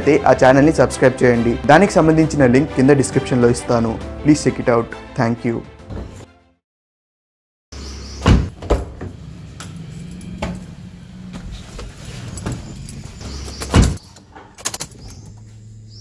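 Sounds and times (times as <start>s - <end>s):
loud thumps: 8.2s - 9.2s.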